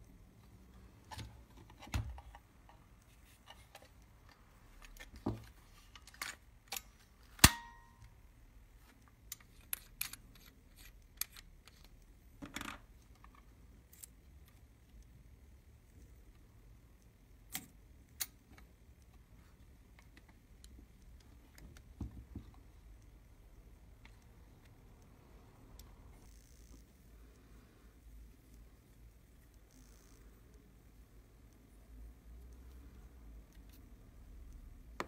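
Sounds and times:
sharp metallic snap with ring: 0:07.4 - 0:08.1.

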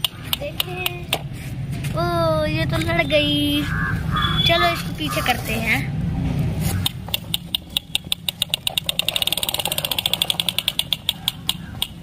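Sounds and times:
rapid toy clicks: 0:06.9 - 0:12.0
toy tractor rolling over sand: 0:08.4 - 0:10.8.

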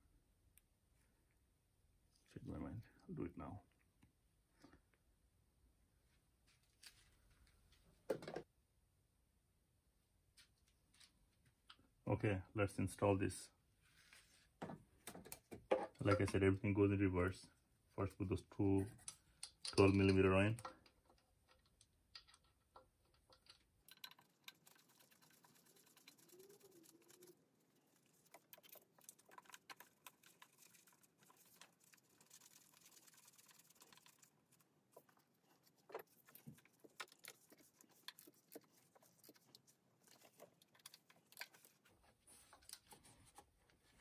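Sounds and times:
faint metallic clicks and taps: 0:18.9 - 0:26.4.

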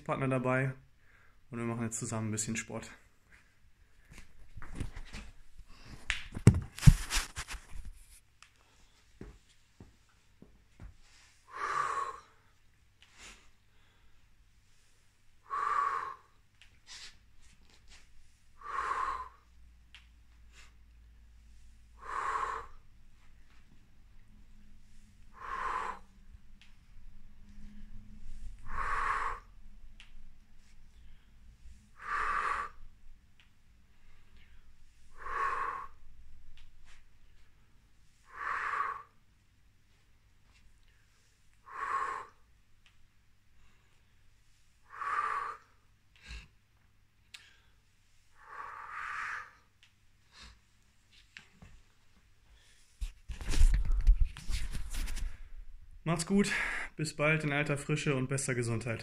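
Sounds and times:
man breathing out hard: 0:18.6 - 0:19.5, 0:22.0 - 0:22.8, 0:25.3 - 0:26.1, 0:28.5 - 0:29.6, 0:31.9 - 0:32.9, 0:34.4 - 0:36.2
man exhaling forcefully: 0:28.7 - 0:29.5, 0:32.0 - 0:32.8.

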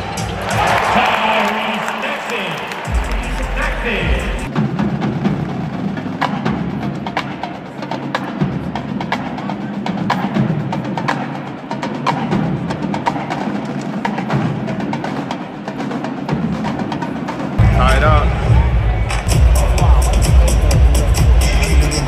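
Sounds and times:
marching drumline: 0:02.8 - 0:22.0.

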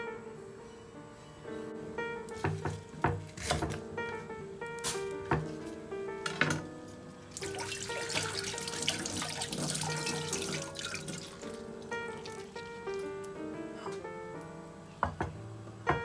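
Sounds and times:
soft background music: 0:00.0 - 0:16.0
tap running into sink: 0:07.4 - 0:12.6.

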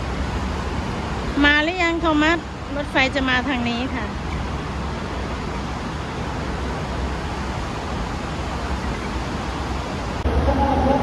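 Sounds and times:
electric train rumble: 0:00.0 - 0:11.0.

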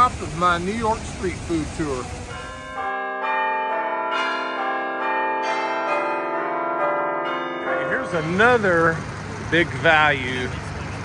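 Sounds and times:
street noise: 0:00.0 - 0:11.0
bell chime jingle: 0:02.3 - 0:11.0.

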